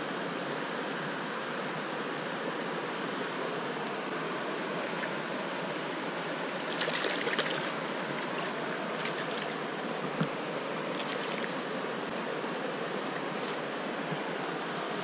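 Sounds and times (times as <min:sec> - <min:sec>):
flowing stream water: 0:00.0 - 0:15.0
fish splashing in water: 0:06.6 - 0:09.6, 0:10.9 - 0:11.6.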